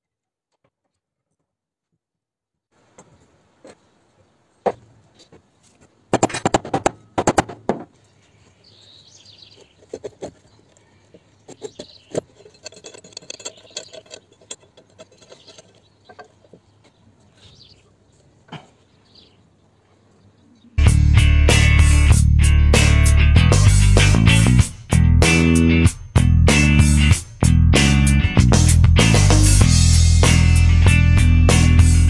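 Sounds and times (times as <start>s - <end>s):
metal rod clicking and rattling: 11.6s - 16.4s.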